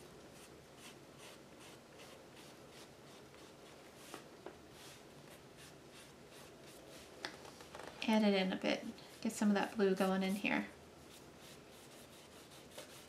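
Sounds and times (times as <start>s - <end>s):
paintbrush strokes on paper: 0.3s - 7.2s, 9.0s - 13.0s.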